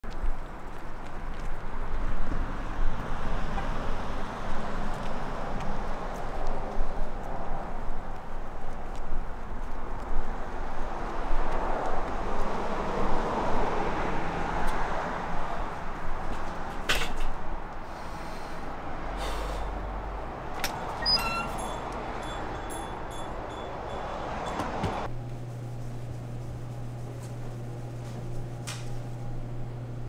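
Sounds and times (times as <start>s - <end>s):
street traffic: 0.0s - 30.0s
high ringing tone: 21.0s - 24.7s.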